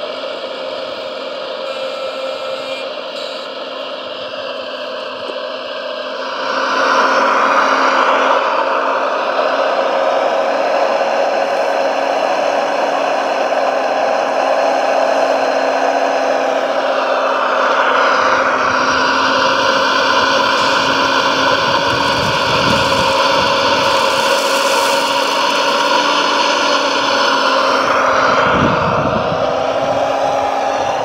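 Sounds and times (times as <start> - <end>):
low rumble: 17.2 - 31.0.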